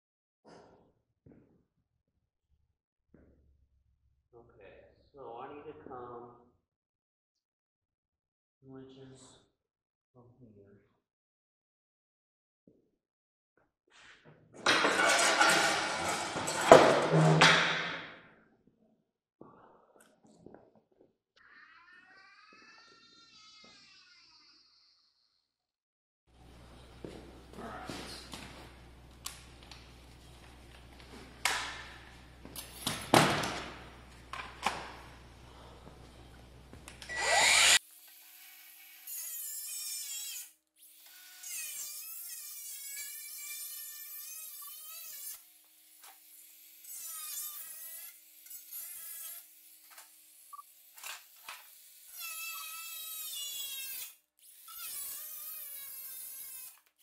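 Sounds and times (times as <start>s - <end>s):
power tool cutting metal: 37.1s - 56.9s.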